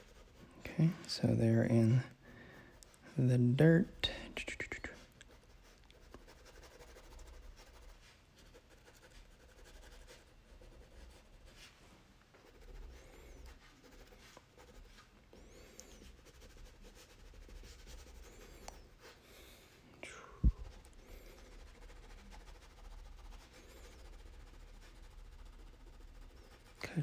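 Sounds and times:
crayon scratching on paper: 0.0s - 0.4s, 3.8s - 11.7s, 12.4s - 18.8s, 20.5s - 27.0s.

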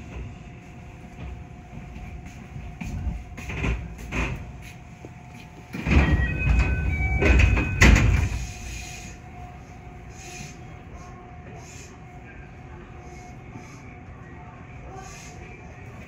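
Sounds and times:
train low hum: 0.0s - 16.0s
train doors shutting knock: 3.4s - 4.6s, 5.7s - 8.9s
door chime tones: 5.8s - 8.4s.

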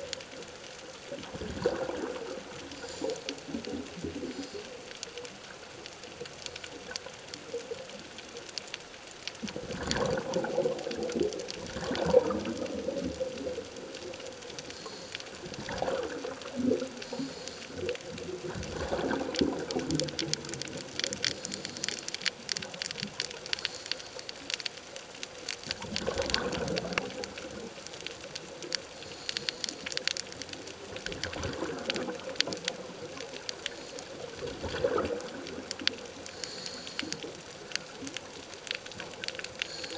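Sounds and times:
faint crackle of clicks: 0.0s - 39.9s
regulator bubbles gurgling underwater: 0.0s - 39.9s.

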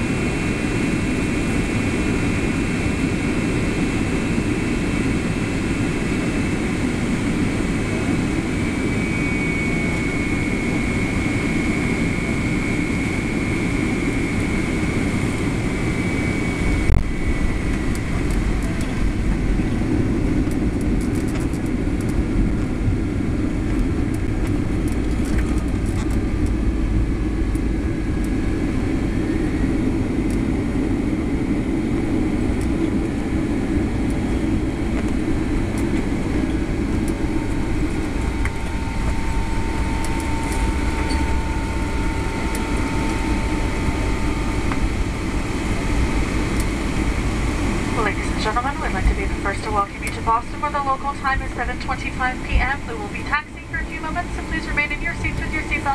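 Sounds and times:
engine and airflow rush: 0.0s - 55.9s
runway rumble and rattling: 1.3s - 48.1s
faint high whine: 26.4s - 55.9s.

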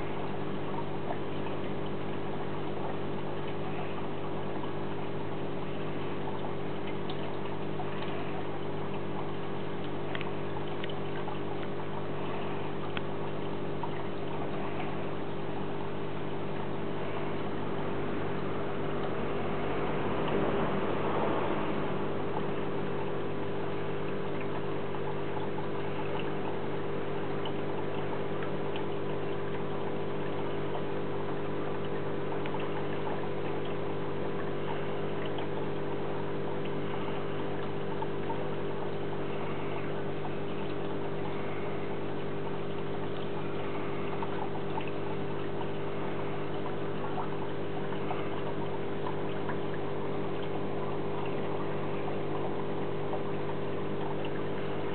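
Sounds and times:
aquarium pump hum: 0.0s - 54.9s
water trickling: 0.0s - 54.9s.

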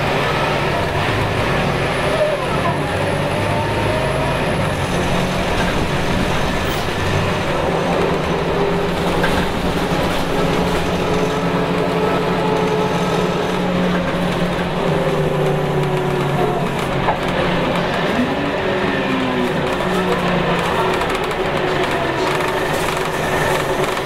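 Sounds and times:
bus engine pulling: 0.0s - 24.0s
road noise: 0.0s - 24.0s.

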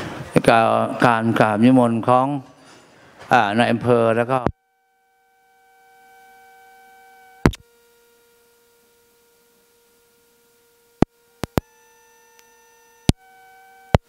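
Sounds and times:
electronic tone with overtones: 4.3s - 7.6s, 11.4s - 14.0s
sharp clicks: 11.4s - 11.7s.

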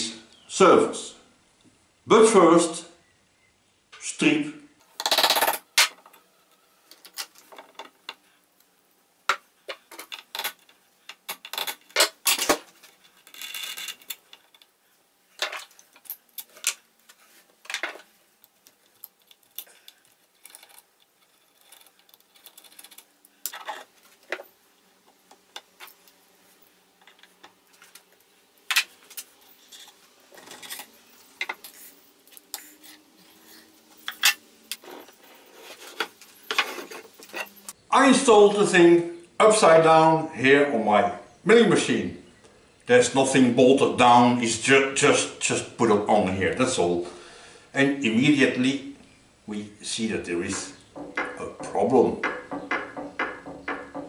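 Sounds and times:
steel tools clinking and knocking: 9.7s - 14.7s, 33.4s - 35.2s, 50.6s - 54.0s.

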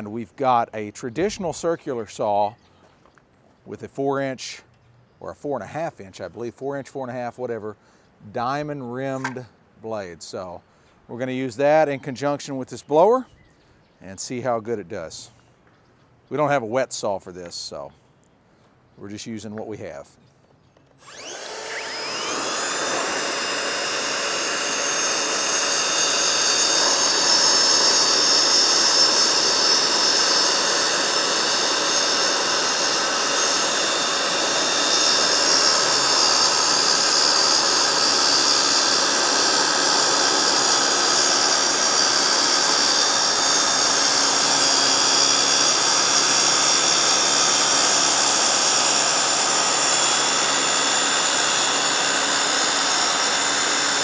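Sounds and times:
circular saw cutting panel: 8.6s - 9.5s, 21.0s - 54.0s
blower: 20.9s - 54.0s.

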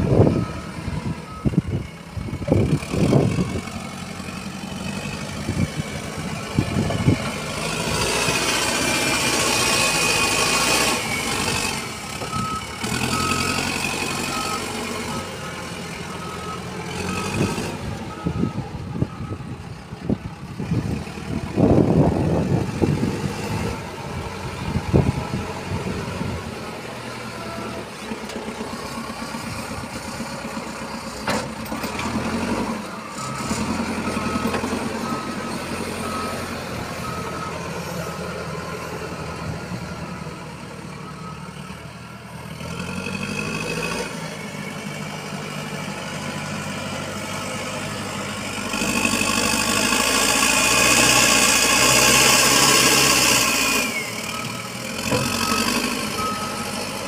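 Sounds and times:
diesel engine revving: 0.0s - 57.0s
reversing alarm beeps: 12.2s - 19.6s, 33.1s - 39.6s, 40.9s - 41.8s, 53.9s - 56.9s.

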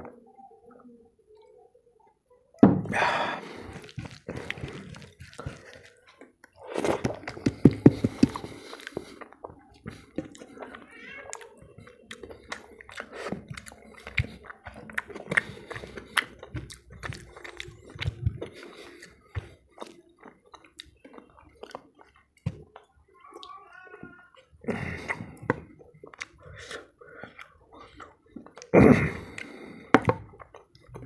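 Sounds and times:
breathy burst: 2.9s - 3.9s
wet chewing and smacking: 3.4s - 31.0s
fingers mashing food on plate: 6.7s - 22.9s.

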